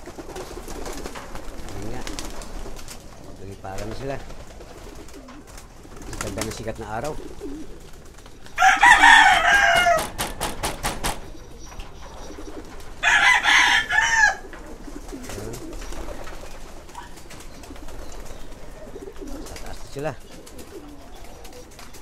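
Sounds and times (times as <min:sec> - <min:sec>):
loud pigeon calls: 0:00.0 - 0:22.0
pigeons cooing: 0:00.0 - 0:22.0
sharp claps: 0:09.9 - 0:11.2.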